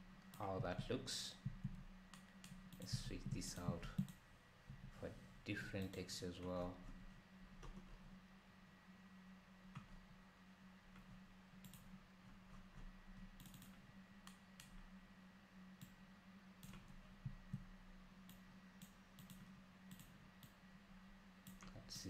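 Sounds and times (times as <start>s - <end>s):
electrical hum: 0.0s - 22.0s
computer mouse clicks: 1.5s - 4.2s, 10.9s - 11.9s, 12.5s - 14.8s, 15.8s - 16.0s, 16.6s - 17.6s, 18.3s - 20.6s, 21.4s - 21.8s.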